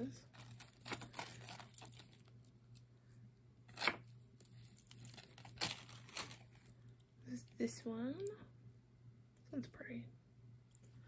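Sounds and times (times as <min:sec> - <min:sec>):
plastic bag crinkling: 0:00.0 - 0:02.6, 0:03.8 - 0:06.8.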